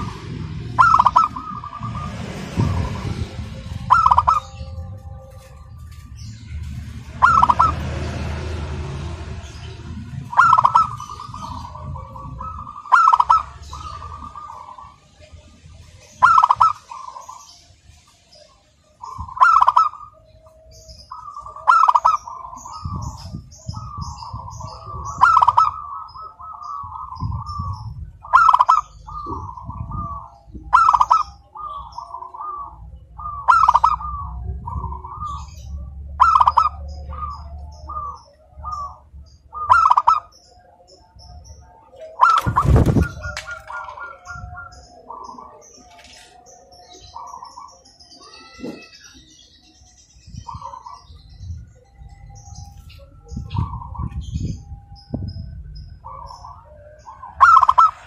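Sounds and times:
dove cooing: 0.0s - 5.9s, 7.0s - 8.0s, 10.2s - 15.4s, 16.0s - 17.6s, 18.4s - 49.5s, 55.9s - 58.0s
low rumble: 0.0s - 16.0s, 22.3s - 31.6s, 32.2s - 47.0s, 49.2s - 58.0s
small birds chirping: 0.0s - 58.0s.

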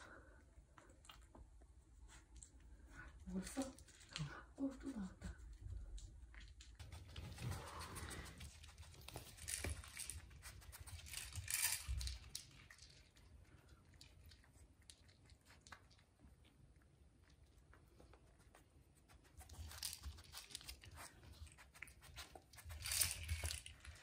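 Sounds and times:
kibble rattling: 6.4s - 16.0s, 19.5s - 24.0s
dog eating kibble clicks: 21.8s - 24.0s.

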